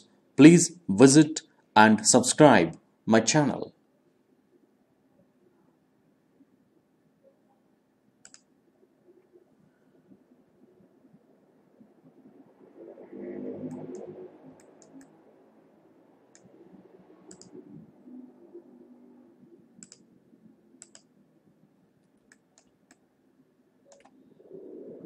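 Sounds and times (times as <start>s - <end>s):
mouse button clicking: 8.2s - 8.5s, 17.3s - 17.5s, 23.9s - 24.1s.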